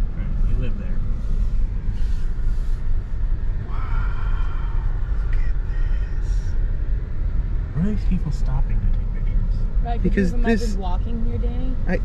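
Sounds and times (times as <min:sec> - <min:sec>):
car driving rumble: 0:00.0 - 0:12.0.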